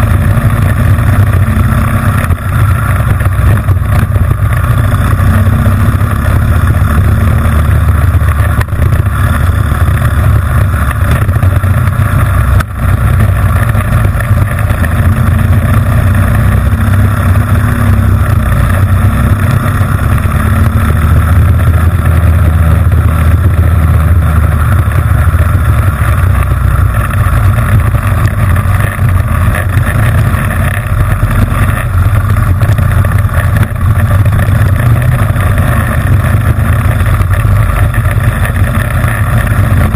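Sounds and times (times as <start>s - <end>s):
kart engine running hard: 0.0s - 39.9s.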